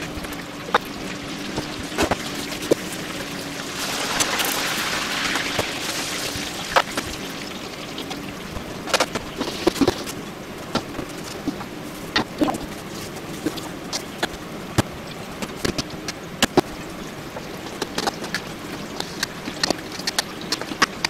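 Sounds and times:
water running from kitchen tap: 0:00.0 - 0:09.7.

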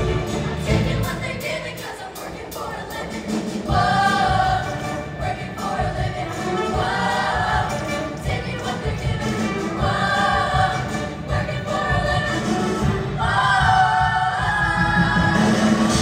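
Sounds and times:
choir singing with instruments: 0:00.0 - 0:16.0.

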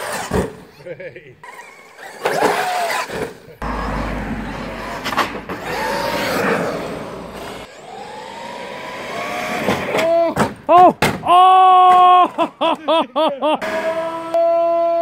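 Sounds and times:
electric motor whining: 0:01.4 - 0:10.2.

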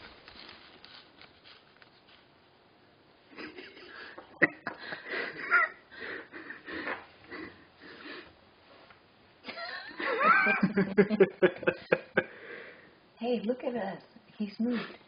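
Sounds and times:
person laughing wheezily: 0:03.4 - 0:08.1, 0:09.5 - 0:12.4.

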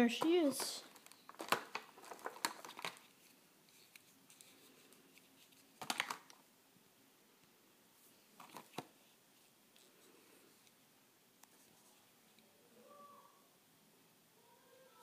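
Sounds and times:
plastic packaging crinkling: 0:00.4 - 0:04.6, 0:05.3 - 0:06.4.

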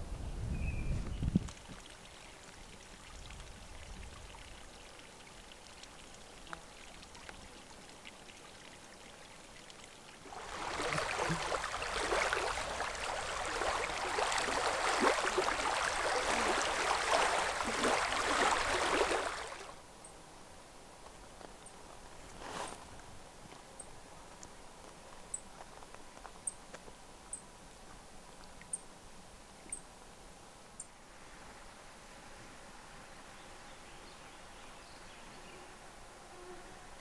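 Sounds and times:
water lapping against rocks: 0:10.2 - 0:19.8.

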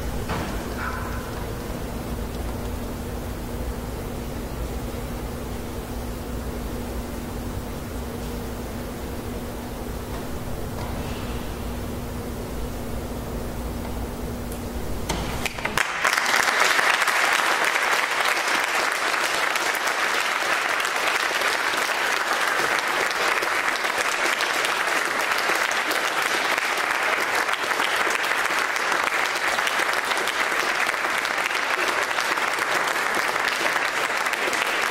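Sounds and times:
low steady hum: 0:00.0 - 0:16.0
audience applause: 0:15.4 - 0:34.9.

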